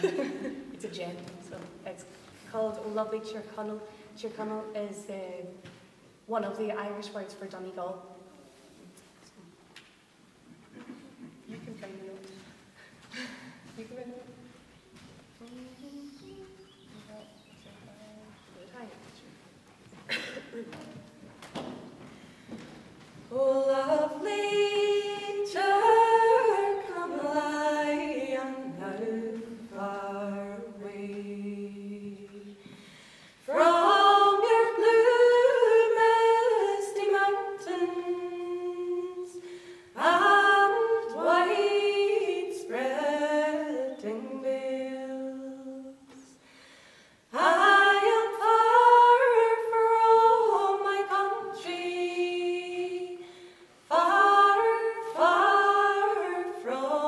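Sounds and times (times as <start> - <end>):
women singing in harmony: 23.3 - 32.8, 33.4 - 46.4, 47.3 - 57.0.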